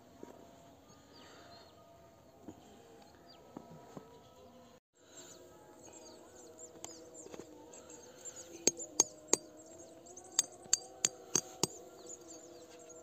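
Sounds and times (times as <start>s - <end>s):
hatchet striking metal tent peg: 8.6s - 9.5s, 10.3s - 11.8s.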